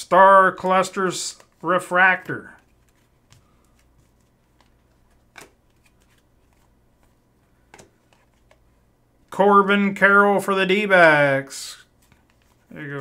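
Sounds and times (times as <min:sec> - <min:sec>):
trading cards clicking and sliding: 0:00.6 - 0:08.7.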